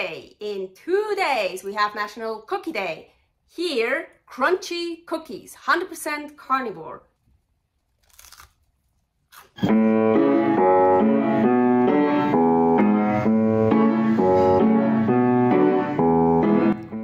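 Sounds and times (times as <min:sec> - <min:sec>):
piano-like instrumental music: 0:09.6 - 0:17.0.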